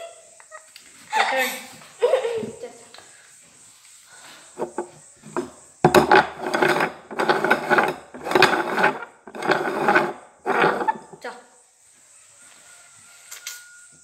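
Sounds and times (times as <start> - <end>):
cups scraping across wooden table: 4.6 - 11.2.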